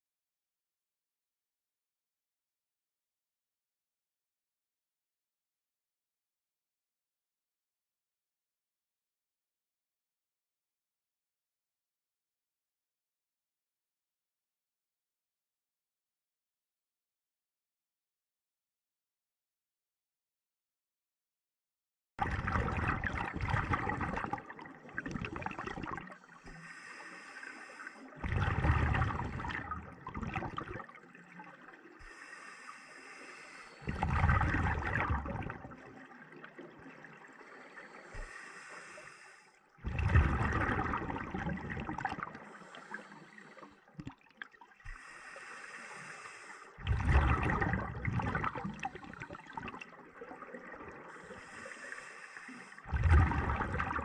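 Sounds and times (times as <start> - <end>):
bubbling exhaled air underwater: 22.2 - 27.3, 28.1 - 54.0
regulator inhalation hiss: 26.5 - 28.0, 32.1 - 33.8, 37.9 - 39.5, 45.0 - 46.8, 51.2 - 52.8.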